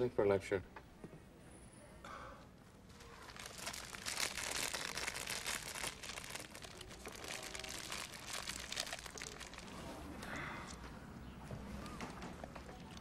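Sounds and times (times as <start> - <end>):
dense crackling rustling: 2.9 - 10.2.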